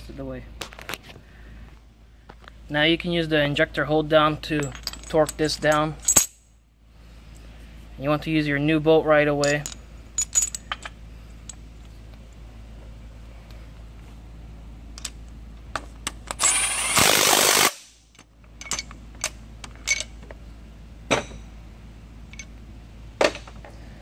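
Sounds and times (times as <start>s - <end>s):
cordless impact tool burst: 16.3s - 18.0s.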